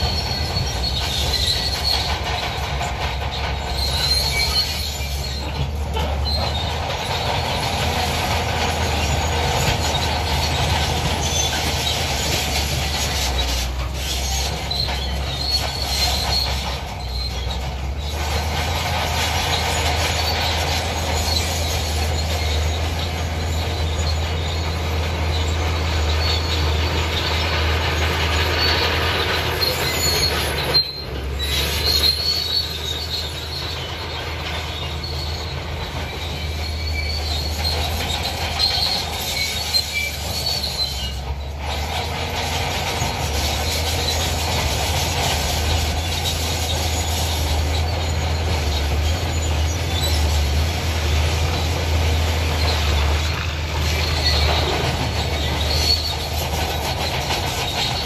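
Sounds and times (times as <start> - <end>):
bulldozer engine humming: 0.0 - 58.0
steel tracks squealing and clanking: 0.0 - 58.0.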